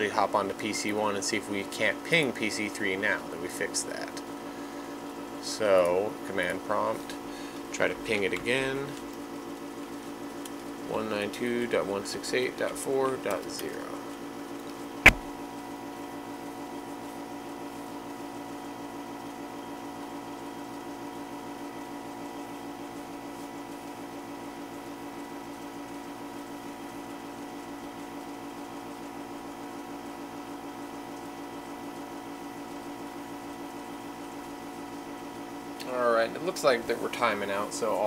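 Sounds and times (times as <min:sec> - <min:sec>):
electrical hum with flutter: 0:03.0 - 0:38.0
keyboard click: 0:15.1 - 0:15.3.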